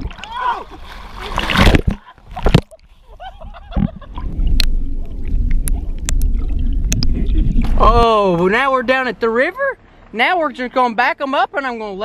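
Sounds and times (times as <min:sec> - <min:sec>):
water splashing: 0:00.0 - 0:02.9, 0:03.7 - 0:09.0
sharp clicks underwater: 0:01.5 - 0:02.8, 0:03.8 - 0:07.8
muffled underwater rumble: 0:01.6 - 0:08.2.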